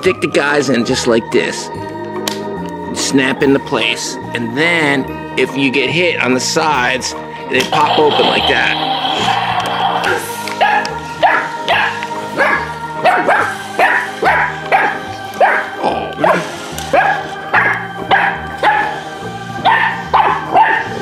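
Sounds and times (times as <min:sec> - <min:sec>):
background music with beat: 0:00.0 - 0:21.0
puppy barking: 0:10.6 - 0:19.0, 0:19.6 - 0:21.0.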